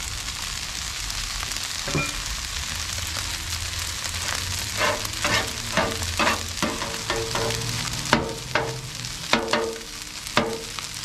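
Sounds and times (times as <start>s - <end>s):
rice and vegetables sizzling: 0.0s - 11.0s
metal spatula clanking on griddle: 1.9s - 2.3s, 4.2s - 11.0s.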